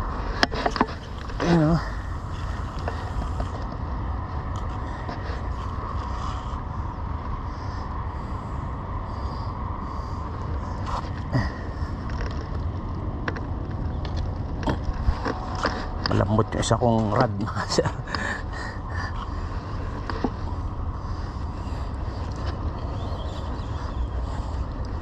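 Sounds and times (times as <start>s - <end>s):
low background rumble: 0.0s - 25.0s.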